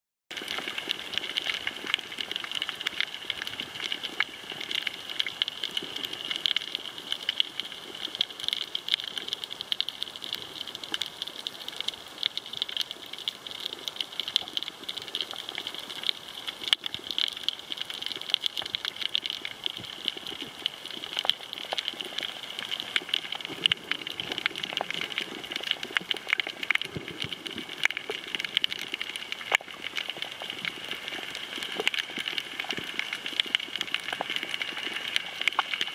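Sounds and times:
snapping shrimp crackle: 12.3s - 35.9s.

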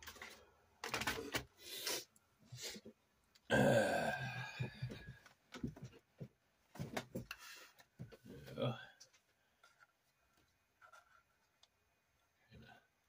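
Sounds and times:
man groaning: 3.5s - 4.9s.

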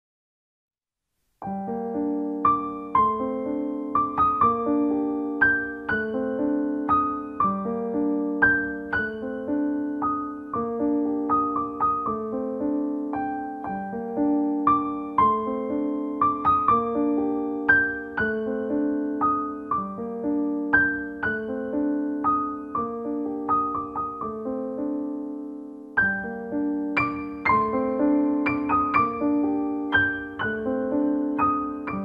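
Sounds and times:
slow piano music: 1.4s - 32.0s.

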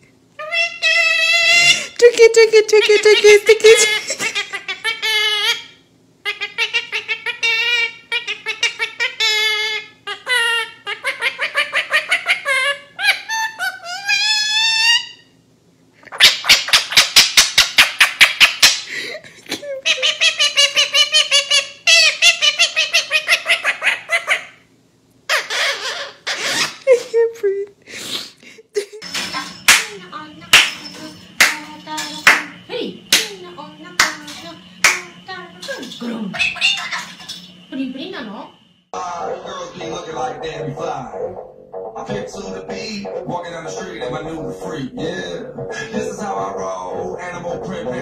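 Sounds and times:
parakeet laughing: 0.4s - 15.2s, 16.1s - 24.6s, 25.3s - 27.1s, 33.2s - 37.5s
woman laughing: 1.6s - 4.7s, 18.9s - 20.2s, 26.9s - 27.7s, 28.4s - 29.0s.

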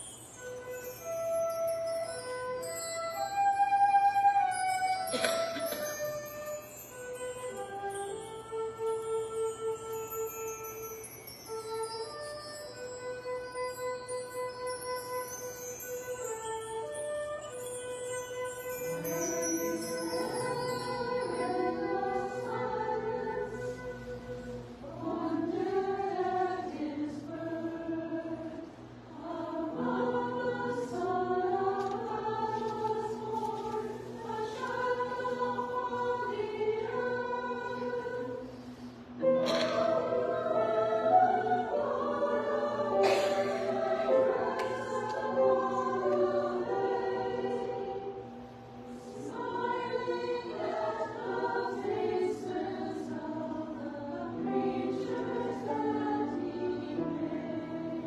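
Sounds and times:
choir singing in parts: 3.2s - 6.6s, 18.7s - 58.0s.

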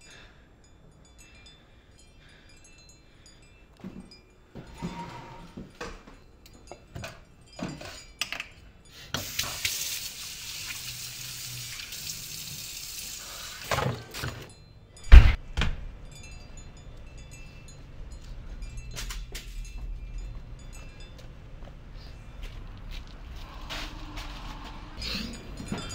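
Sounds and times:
faucet running into steel sink: 9.2s - 13.8s
heavy thuds: 15.0s - 15.9s
footsteps: 18.2s - 25.9s.

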